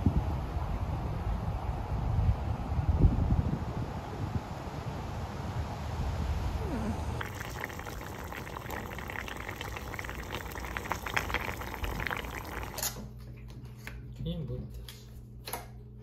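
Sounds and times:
wind on microphone: 0.0 - 7.3
stew bubbling at the boil: 6.6 - 13.0.

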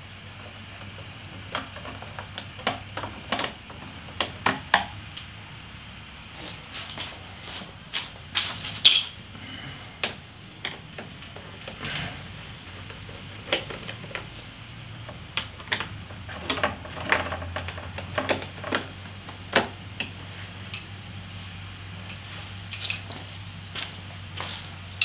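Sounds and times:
metal screws clinking: 8.8 - 9.2.

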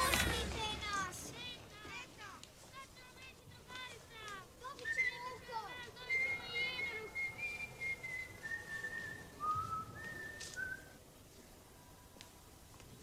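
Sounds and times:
man whistling a tune: 6.1 - 11.0.

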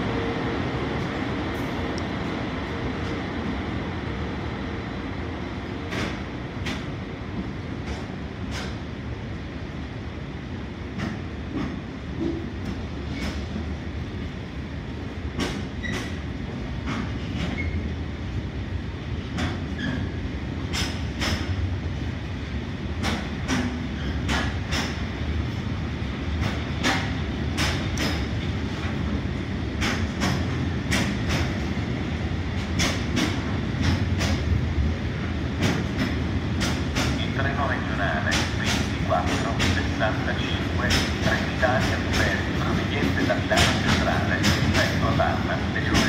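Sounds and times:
train rumble: 0.0 - 46.0
wheels clacking over rail joints: 38.2 - 39.8, 40.8 - 46.0.

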